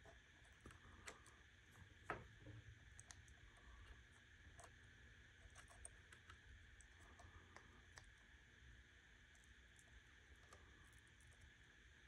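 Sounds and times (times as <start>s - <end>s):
faint ticks and clicks: 0.0s - 8.4s.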